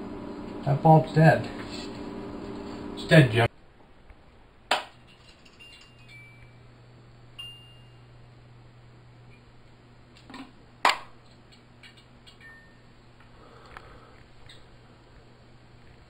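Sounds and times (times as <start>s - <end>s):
fluorescent ballast hum: 0.0s - 16.0s.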